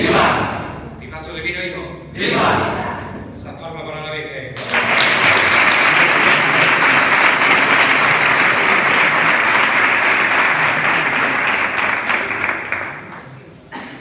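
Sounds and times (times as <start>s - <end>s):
crowd clapping: 4.5s - 13.6s.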